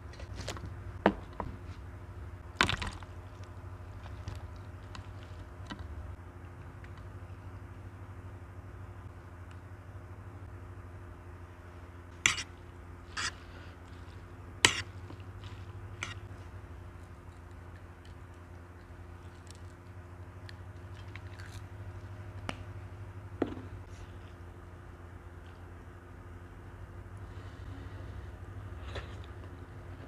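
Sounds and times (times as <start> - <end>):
low hum: 0.0 - 30.0
wet noodles squelching: 12.2 - 22.3.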